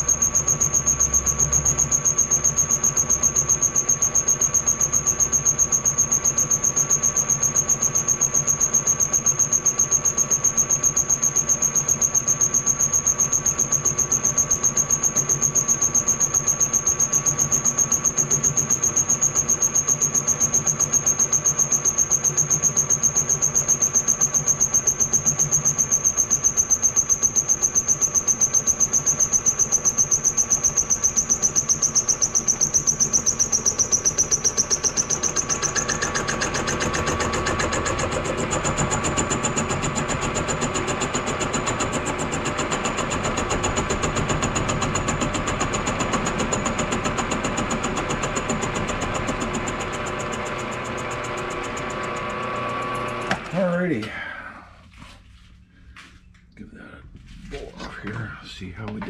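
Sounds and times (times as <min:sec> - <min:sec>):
milling machine spindle whining: 0:00.0 - 0:53.8
cutter pulsing through metal: 0:28.4 - 0:53.9.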